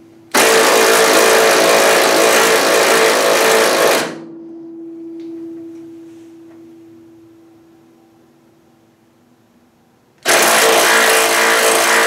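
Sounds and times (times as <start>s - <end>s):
faint steady hum: 0.0s - 0.4s, 4.2s - 10.2s.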